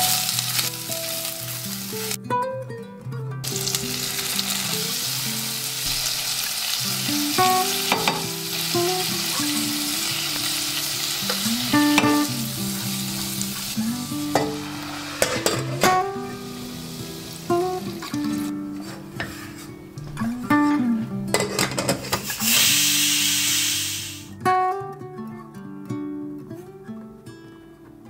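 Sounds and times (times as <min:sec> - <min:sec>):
vegetables sizzling in oil: 0:00.0 - 0:02.2, 0:03.4 - 0:19.6, 0:21.4 - 0:24.3.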